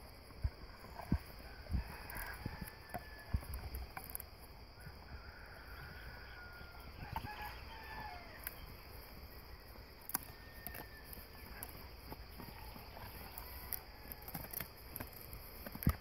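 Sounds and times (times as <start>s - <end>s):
dogs chewing wooden stick: 0.3s - 5.1s, 5.7s - 16.0s
faint chicken calling: 4.8s - 8.8s.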